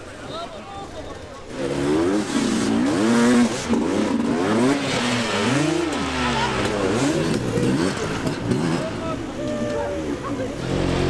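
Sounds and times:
dirt bike engine revving: 1.5s - 9.4s, 10.0s - 11.0s.

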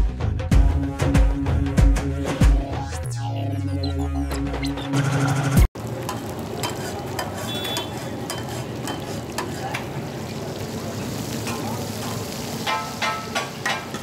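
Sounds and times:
music: 0.0s - 5.7s
chicken sizzling on griddle: 5.8s - 14.0s
metal spatula scraping griddle: 6.0s - 10.0s.

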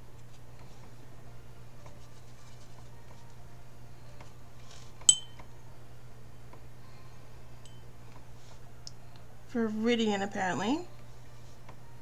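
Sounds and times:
brush clinking against glass: 5.1s - 5.4s.

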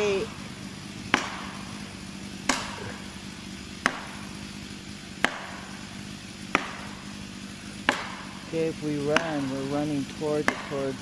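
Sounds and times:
maul striking metal wedge: 1.1s - 1.6s, 2.4s - 3.0s, 3.8s - 4.2s, 5.2s - 5.8s, 6.5s - 7.0s, 7.8s - 8.3s, 10.4s - 10.9s.

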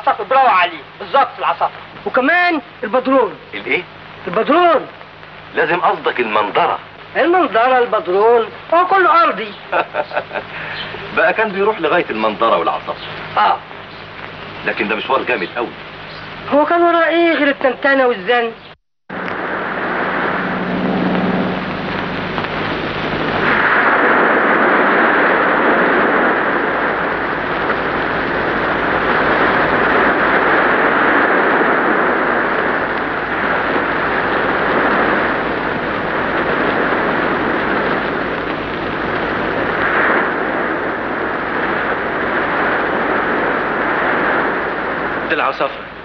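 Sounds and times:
sea waves breaking: 19.2s - 45.3s.

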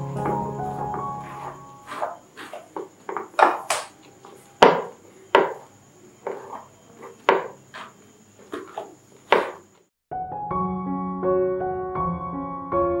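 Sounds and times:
scraper smearing cream frosting: 1.9s - 2.7s.

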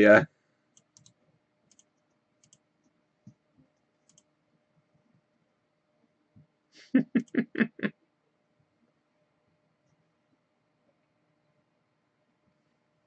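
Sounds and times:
computer mouse clicks: 0.7s - 2.7s, 4.0s - 4.3s.

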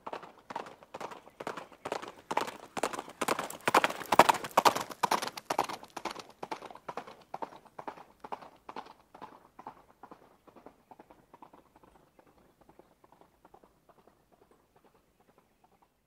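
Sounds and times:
horse hooves clip-clopping: 0.0s - 16.0s.

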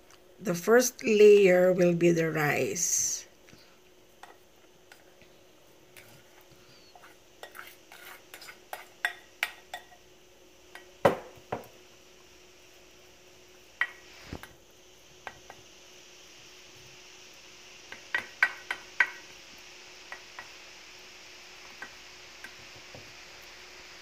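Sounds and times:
spatula tapping and scraping bowl: 6.9s - 10.0s, 17.9s - 19.2s.

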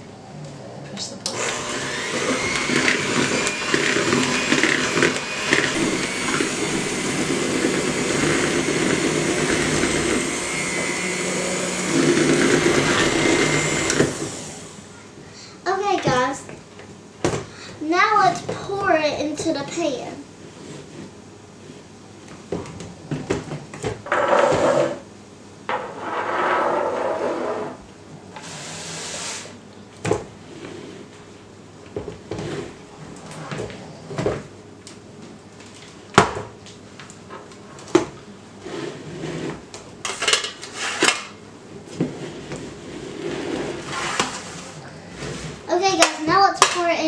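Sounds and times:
scraping noise: 25.7s - 27.8s.

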